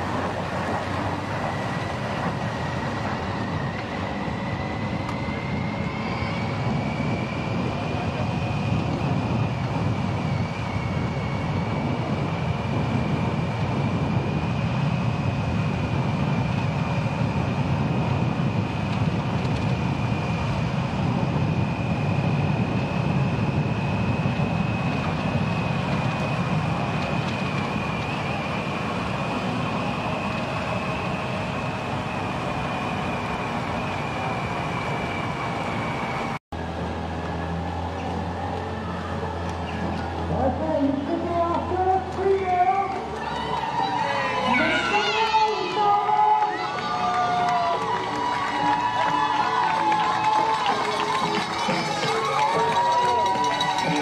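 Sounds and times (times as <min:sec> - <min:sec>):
wind rush: 0:00.0 - 0:36.4
motorcycle engine drone: 0:00.0 - 0:54.0.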